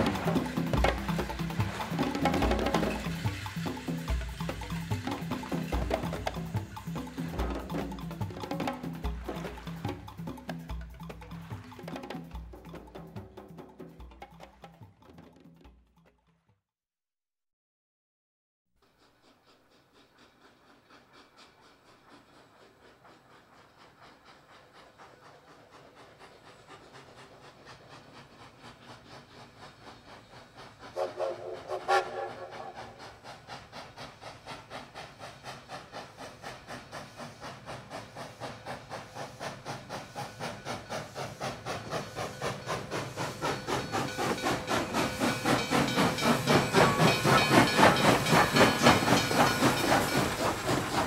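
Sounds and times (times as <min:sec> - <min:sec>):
steam train chugging: 0:00.0 - 0:16.1, 0:18.8 - 0:51.0
steam whistle: 0:30.9 - 0:33.1.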